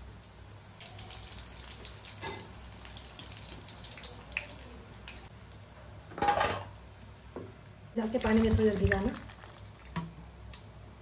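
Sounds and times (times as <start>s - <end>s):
food deep-frying in hot oil: 0.0s - 5.3s, 7.9s - 11.0s.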